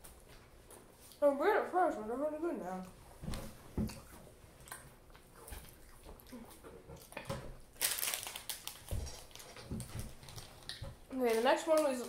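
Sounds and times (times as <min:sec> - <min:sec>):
quiet chewing: 0:03.8 - 0:07.5, 0:08.4 - 0:11.9
plastic packaging crinkling: 0:07.7 - 0:12.0.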